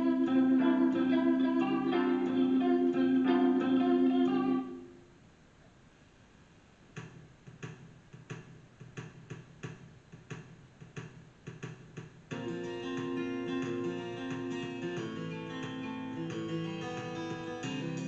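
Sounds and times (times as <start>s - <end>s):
guitar music: 0.0s - 4.9s, 12.3s - 18.0s
background music: 0.0s - 5.0s, 12.3s - 18.0s.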